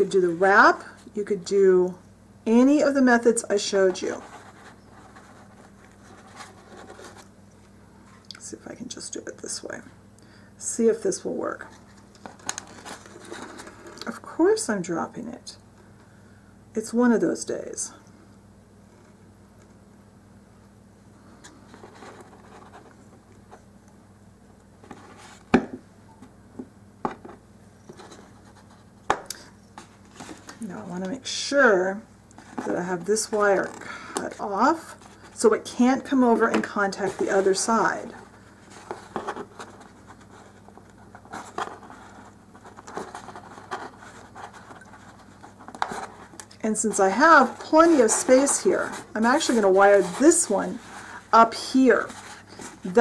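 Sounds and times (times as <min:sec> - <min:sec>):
faint rustling and scratching: 0:03.5 - 0:08.2, 0:11.5 - 0:14.1, 0:21.2 - 0:23.7, 0:24.8 - 0:25.5, 0:27.2 - 0:29.0, 0:29.7 - 0:53.0.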